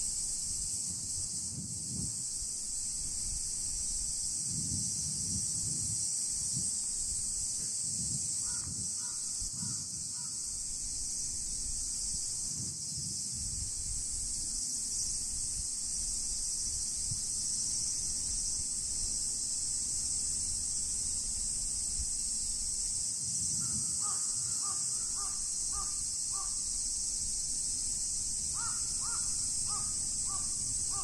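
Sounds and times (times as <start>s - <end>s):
wind rumble on microphone: 0.0s - 24.1s
cicadas chorus: 0.0s - 31.0s
crow cawing: 8.4s - 10.4s, 24.0s - 26.6s, 28.6s - 31.0s.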